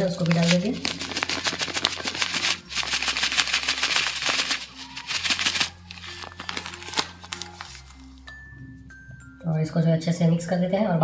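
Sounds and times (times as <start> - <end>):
plastic bag crinkling: 0.0 - 8.1
soft background music: 0.0 - 11.0.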